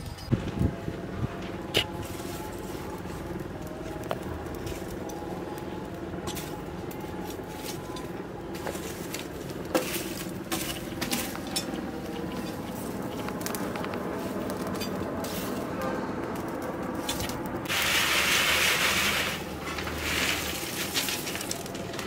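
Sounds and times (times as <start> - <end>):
metal tongs clinking and scraping: 7.2 - 13.2.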